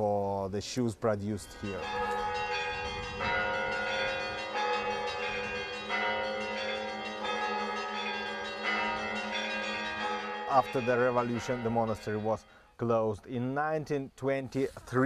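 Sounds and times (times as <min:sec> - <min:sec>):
church bells ringing: 0:01.4 - 0:13.0.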